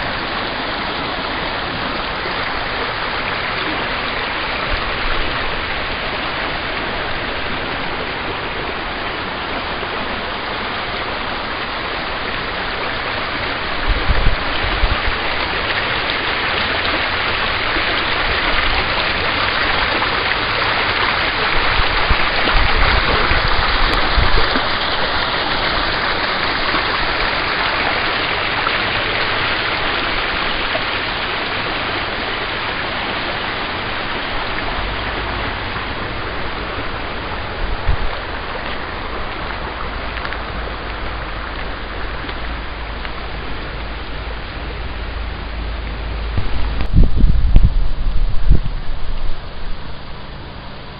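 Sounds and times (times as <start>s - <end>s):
brook rushing over stones: 0.0s - 44.9s
low rumble: 34.7s - 50.6s.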